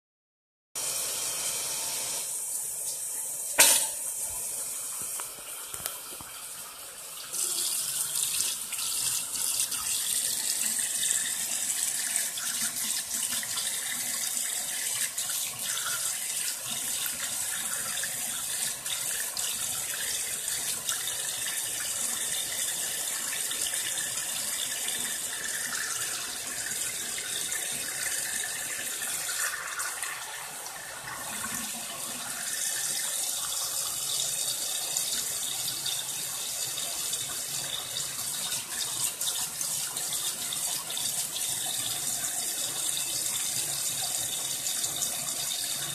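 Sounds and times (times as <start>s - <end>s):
tap running into sink: 3.6s - 4.4s.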